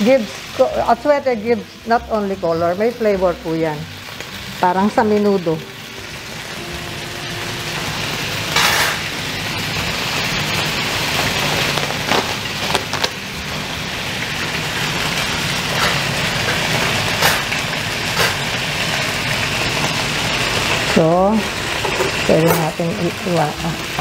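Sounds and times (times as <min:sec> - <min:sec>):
chicken sizzling in hot oil: 0:00.0 - 0:24.0
oil spitting and popping: 0:11.4 - 0:13.2.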